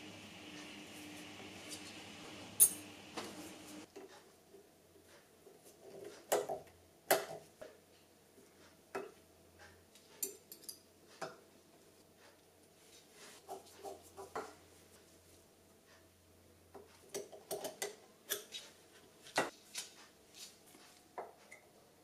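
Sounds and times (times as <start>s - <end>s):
metallic clicks and taps of jewelry parts: 9.9s - 11.4s.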